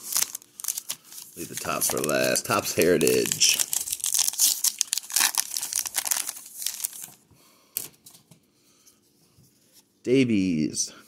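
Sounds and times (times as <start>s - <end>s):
card pack wrapper tearing: 0.0s - 7.2s.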